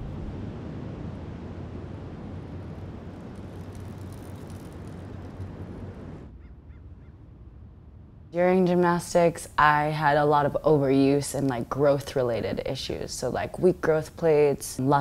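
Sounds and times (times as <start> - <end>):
low rumbling noise: 0.0 - 11.4.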